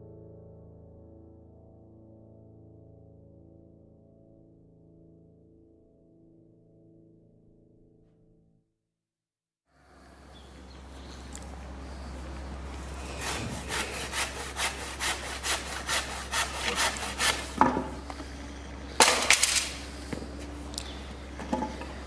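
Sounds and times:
hand saw cutting wood: 12.8s - 17.9s.

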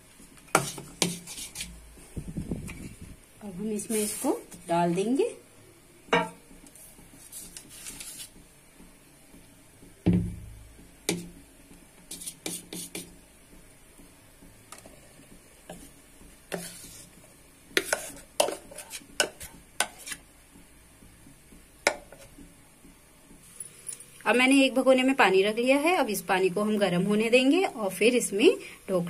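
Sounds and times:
spoon scraping bowl: 0.5s - 1.8s, 16.5s - 17.2s, 17.8s - 20.2s.

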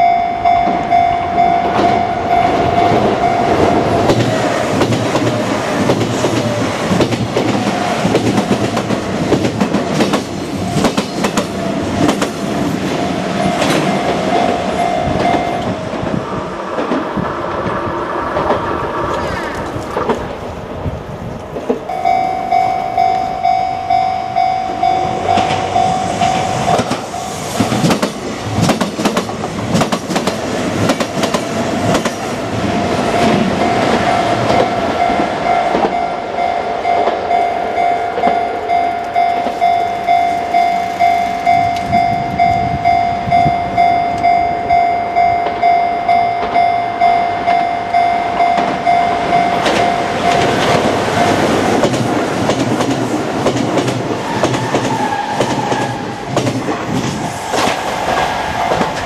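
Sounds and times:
level crossing bell ringing: 0.0s - 4.4s, 13.1s - 15.8s, 21.9s - 27.4s, 33.0s - 51.5s
train wheels clattering: 0.5s - 20.4s, 24.3s - 43.6s, 44.2s - 59.0s.

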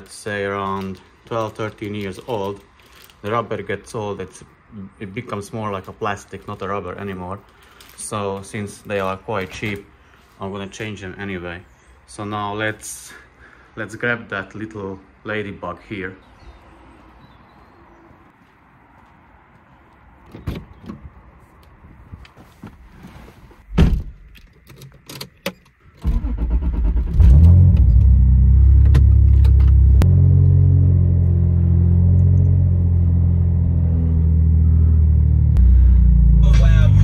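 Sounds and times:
car engine starting: 26.0s - 37.0s.

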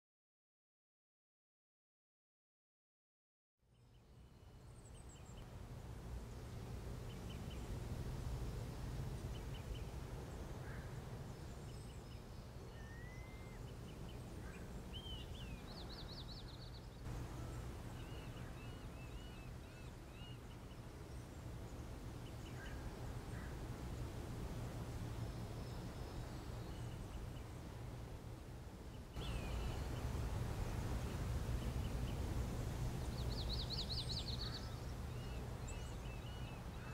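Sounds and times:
low rumble and hiss: 3.6s - 36.9s
small birds chirping and trilling: 8.5s - 23.6s, 28.8s - 30.4s, 31.0s - 36.9s.

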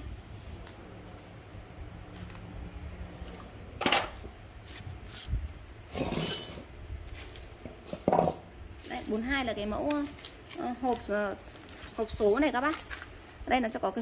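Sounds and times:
metal parts clinking: 6.0s - 6.7s.

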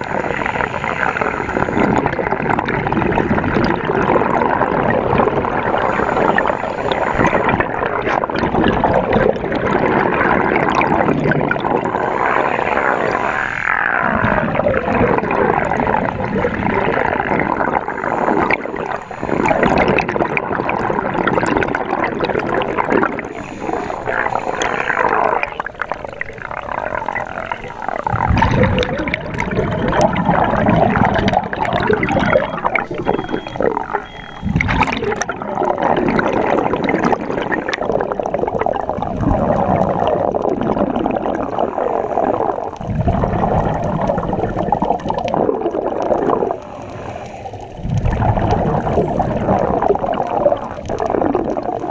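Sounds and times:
diver's regulator breathing: 0.0s - 2.2s, 5.7s - 7.6s, 11.8s - 14.8s, 17.6s - 20.1s, 23.0s - 25.9s, 45.4s - 50.0s
exhaled bubbles gurgling: 0.0s - 51.9s
watery wash: 0.0s - 51.9s.

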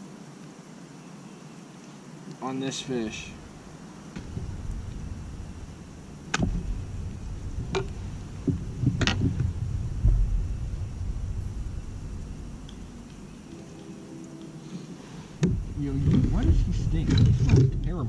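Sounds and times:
low rumble: 3.0s - 18.0s
heavy thump: 3.2s - 13.6s, 15.3s - 18.0s.

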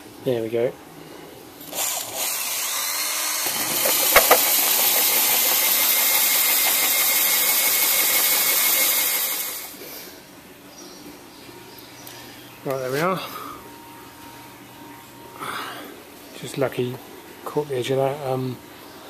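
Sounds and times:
hole saw grinding through metal: 1.7s - 9.7s.

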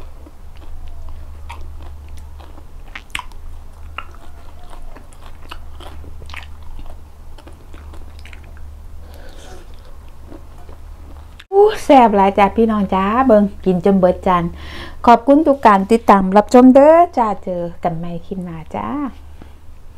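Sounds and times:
chewing with shell crunches: 0.0s - 11.5s.

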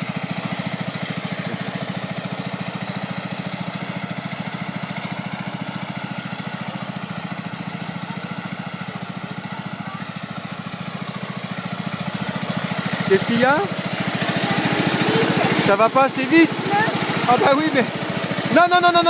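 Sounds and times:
lawn tractor engine running: 0.0s - 19.0s.

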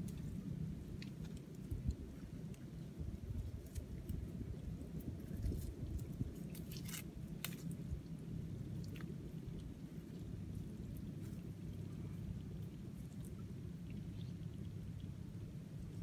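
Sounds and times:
steady low rumble: 0.0s - 16.0s
small clicks and crackles from handling: 0.9s - 2.7s.

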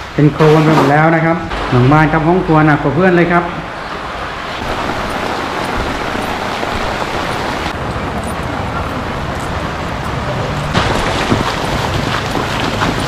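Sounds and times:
heavy rain: 0.0s - 8.0s, 9.6s - 13.0s
floodwater rushing: 0.0s - 13.0s
wind buffeting microphone: 4.6s - 13.0s.

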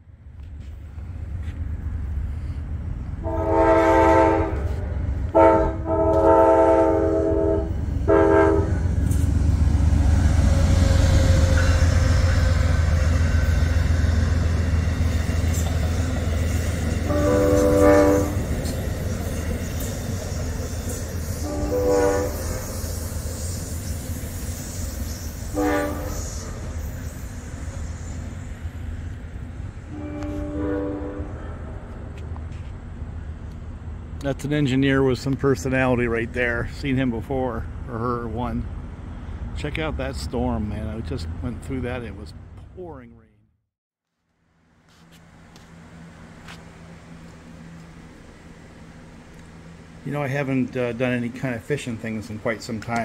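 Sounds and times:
low rumble of train: 0.0s - 43.4s, 44.0s - 53.0s
locomotive air horn blasts: 3.2s - 8.9s, 17.0s - 18.8s, 21.2s - 23.5s, 25.1s - 26.7s, 29.9s - 31.5s.

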